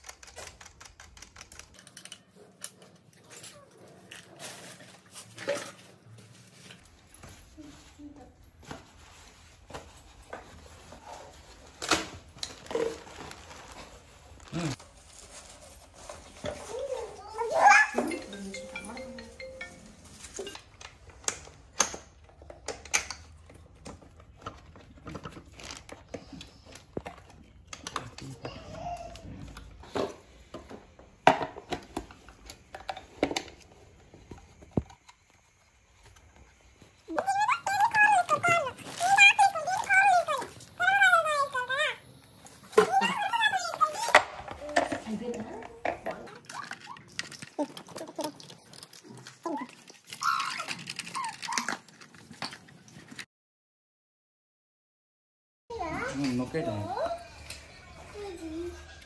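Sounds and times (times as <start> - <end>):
plastic and metal parts clicking: 0.0 - 3.0.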